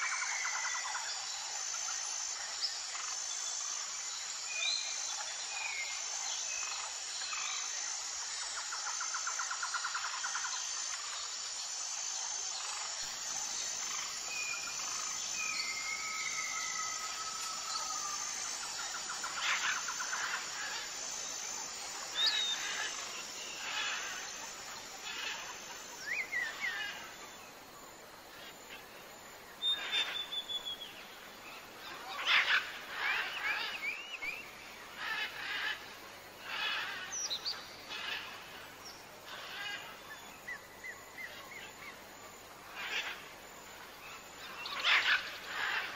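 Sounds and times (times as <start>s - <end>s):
steady background hiss: 0.0s - 45.9s
small birds chirping: 1.1s - 27.3s.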